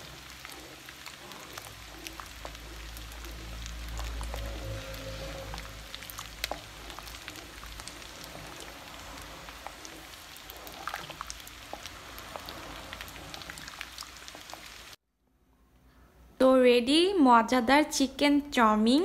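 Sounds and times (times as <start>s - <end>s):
spatula scraping a pot: 0.0s - 14.5s
soup simmering with popping ticks: 0.0s - 15.0s.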